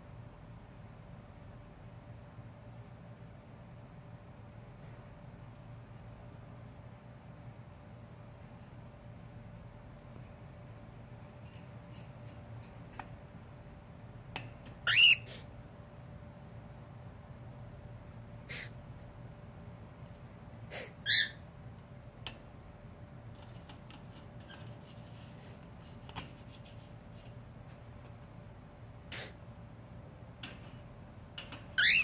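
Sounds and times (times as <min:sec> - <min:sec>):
cockatiel chirping: 0:14.9 - 0:15.3, 0:31.8 - 0:32.0.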